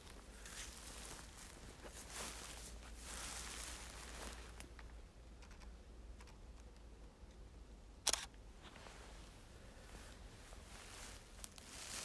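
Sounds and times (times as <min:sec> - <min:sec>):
footsteps crunching through reeds: 0:00.0 - 0:04.8, 0:09.8 - 0:12.0
sharp click: 0:08.0 - 0:08.4.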